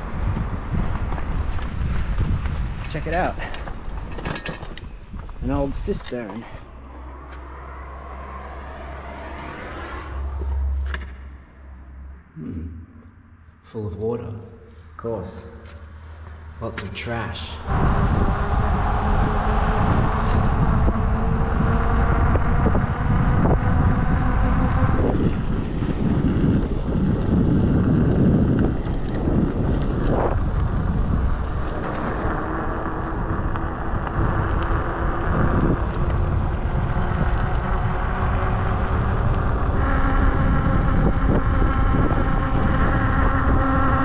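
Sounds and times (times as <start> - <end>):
wind noise on microphone: 0.0 - 7.1, 17.7 - 44.0
motorcycle engine running: 17.7 - 44.0.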